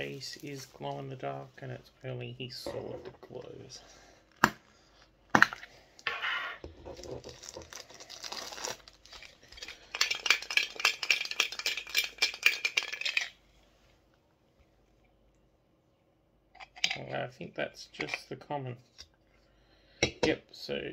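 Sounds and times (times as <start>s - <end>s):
tin can rattling when shaken: 9.6s - 13.4s.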